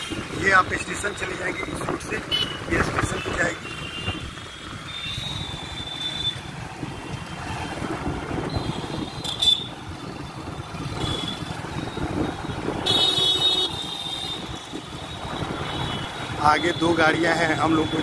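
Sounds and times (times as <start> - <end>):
engine and tyre rumble: 0.0 - 18.0
wind on microphone: 6.4 - 16.1.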